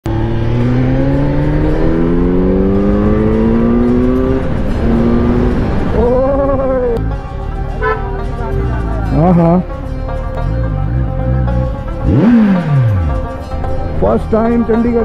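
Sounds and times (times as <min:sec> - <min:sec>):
motorcycle engine accelerating: 0:00.0 - 0:07.0, 0:10.4 - 0:14.1.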